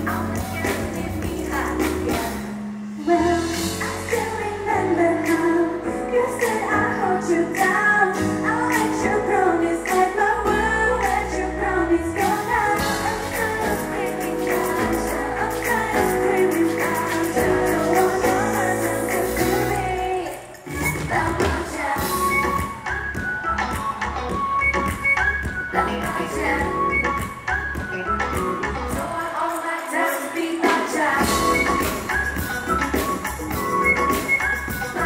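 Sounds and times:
female vocals: 0.0s - 22.6s, 28.9s - 32.0s
bass-heavy pop backing track: 0.0s - 29.2s, 30.9s - 35.0s.

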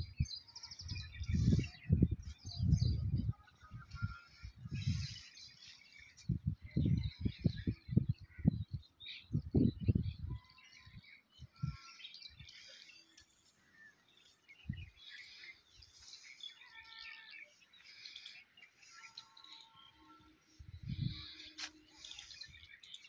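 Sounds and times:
wind buffeting microphone: 0.0s - 5.4s, 6.2s - 11.8s, 14.6s - 15.0s, 19.8s - 21.6s
birds chirping: 0.0s - 23.0s.

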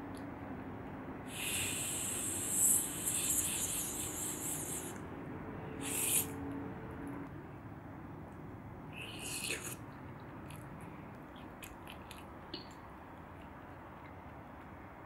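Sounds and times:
person blowing on food: 1.3s - 5.0s, 5.8s - 6.4s.

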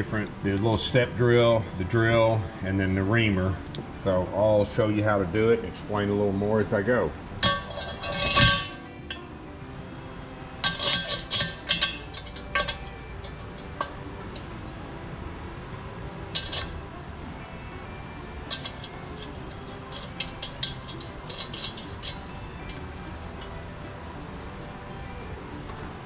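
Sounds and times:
small metal parts clinking: 7.4s - 9.2s, 10.6s - 14.5s, 16.3s - 16.8s, 18.4s - 24.6s.

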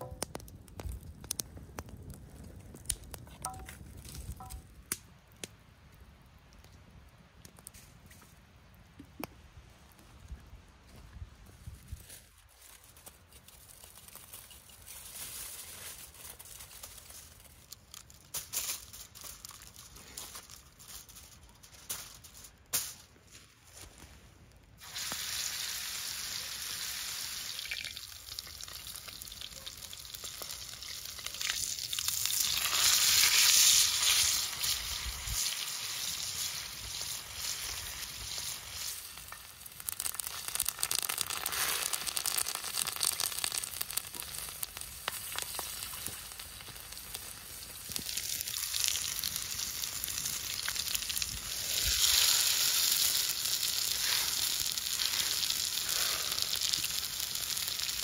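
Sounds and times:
meat sizzling in hot oil: 24.8s - 58.0s.

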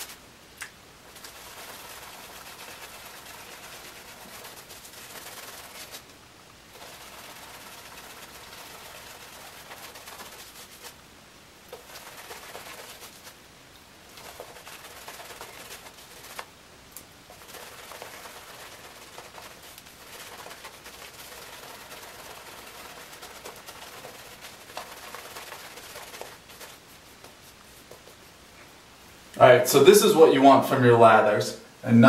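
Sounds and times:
shaving brush swishing lather: 0.0s - 0.2s, 1.0s - 6.1s, 6.7s - 11.0s, 11.7s - 13.4s, 14.1s - 16.5s, 17.3s - 28.4s.

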